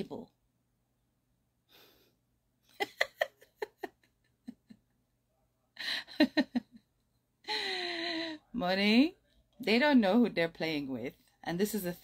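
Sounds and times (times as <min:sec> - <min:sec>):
woman chuckling: 0:02.7 - 0:05.0, 0:05.8 - 0:08.4.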